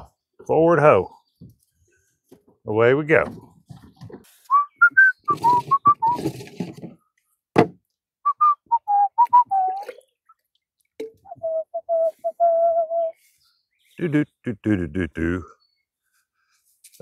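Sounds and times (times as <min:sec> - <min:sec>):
person whistling a tune: 0:04.5 - 0:06.2, 0:08.2 - 0:09.9, 0:11.3 - 0:13.2.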